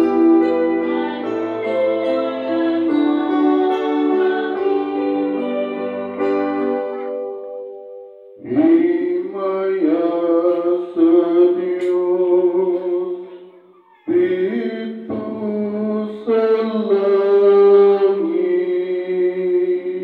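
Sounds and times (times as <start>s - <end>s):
man chanting over loudspeakers: 8.4s - 20.0s.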